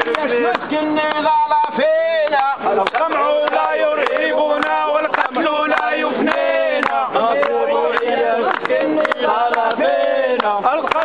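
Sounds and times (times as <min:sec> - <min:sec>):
hand-clapping: 0:00.0 - 0:11.0
men chanting slogans: 0:00.0 - 0:11.0.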